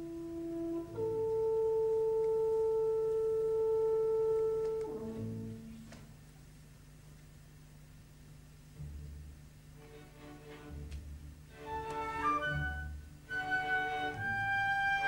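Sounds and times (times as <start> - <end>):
orchestra holding long notes: 0.0 - 5.9, 11.5 - 15.0.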